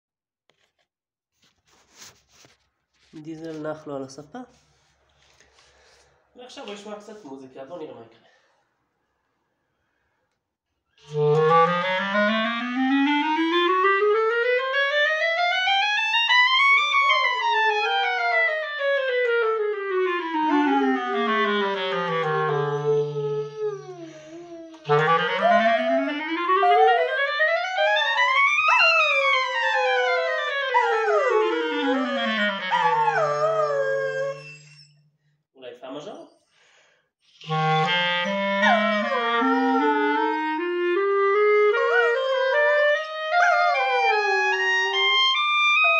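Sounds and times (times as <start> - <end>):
clarinet sweeping notes: 11.0 - 34.8, 37.4 - 45.9
dog howling: 16.8 - 18.6, 22.3 - 34.7, 38.6 - 40.4, 41.6 - 45.9.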